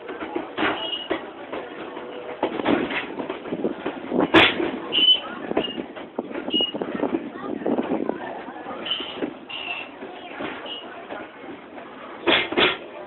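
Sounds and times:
train wheels clattering on track: 0.0s - 8.1s, 8.7s - 13.0s
brief high squeaks: 8.8s - 9.9s.

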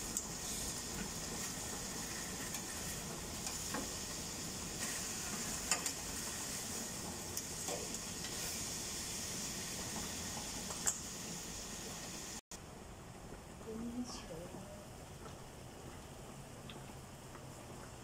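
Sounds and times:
chicken sizzling in grill pan: 0.0s - 12.4s
metal tongs clicking on pan: 5.6s - 6.0s, 10.7s - 11.0s.

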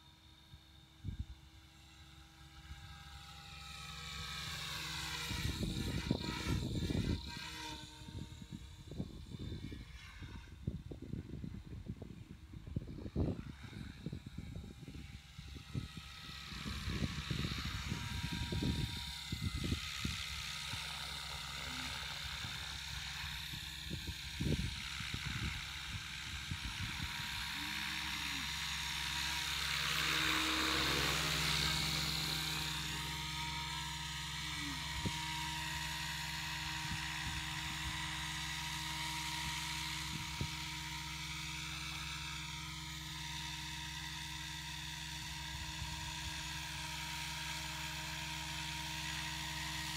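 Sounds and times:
model helicopter whine: 0.0s - 49.9s
wind rumbles on microphone: 5.2s - 20.8s, 22.2s - 27.6s.

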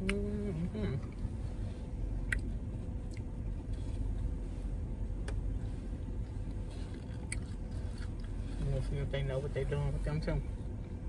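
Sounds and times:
car cabin rumble: 0.0s - 11.0s.

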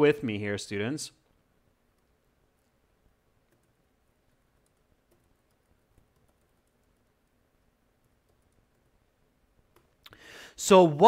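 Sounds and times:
computer keyboard typing: 1.9s - 2.8s, 3.4s - 10.0s.

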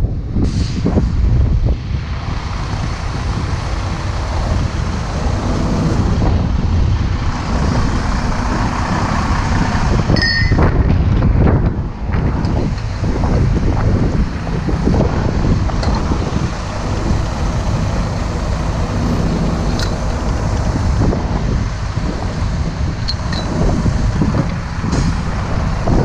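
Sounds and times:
diesel engine running: 0.0s - 26.0s
wind buffeting microphone: 0.0s - 26.0s
high-pitched beep: 10.2s - 10.6s.

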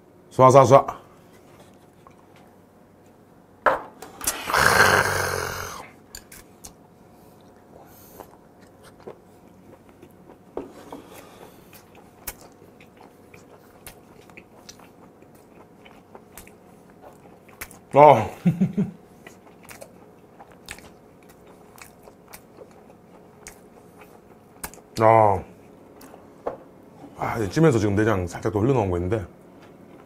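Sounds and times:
quiet chewing: 1.2s - 2.6s, 6.2s - 18.0s, 19.0s - 26.4s, 29.5s - 30.0s
mouth clicks and smacks: 24.6s - 25.1s.

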